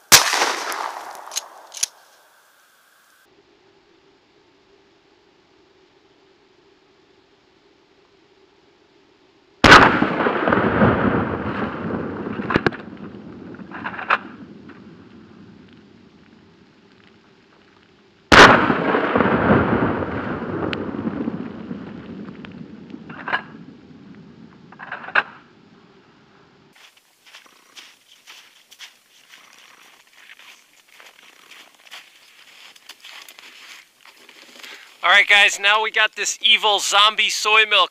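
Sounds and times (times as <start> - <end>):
gunshot echo: 0.1 - 2.0, 9.6 - 13.1, 18.3 - 21.0
shotgun blasts: 0.1 - 2.0, 9.6 - 13.0, 18.3 - 21.2.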